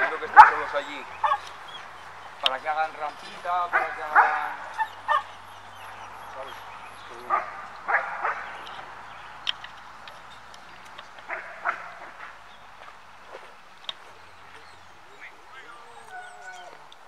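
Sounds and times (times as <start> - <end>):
dog barking: 0.0 - 9.0, 14.5 - 16.8.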